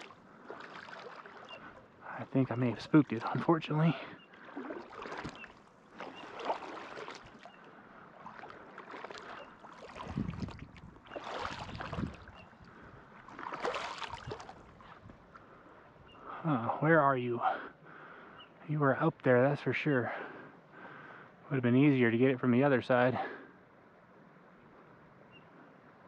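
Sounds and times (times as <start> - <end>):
water sloshing around wading legs: 0.0 - 16.4.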